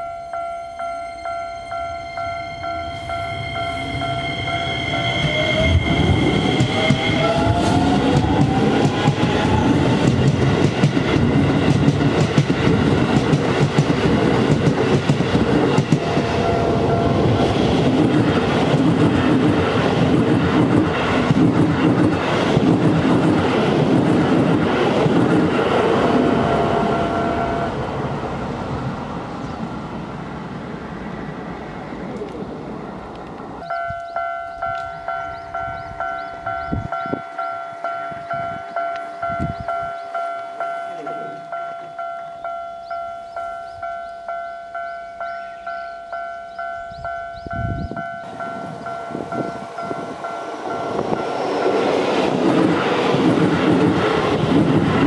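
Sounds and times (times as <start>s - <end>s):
crossing bell ringing: 0.0s - 10.0s, 15.8s - 18.7s, 26.2s - 28.2s, 33.6s - 52.1s
train motor whine: 1.1s - 10.4s
train wheels clicking over rail joints: 5.2s - 16.4s, 17.3s - 26.1s, 48.2s - 55.0s.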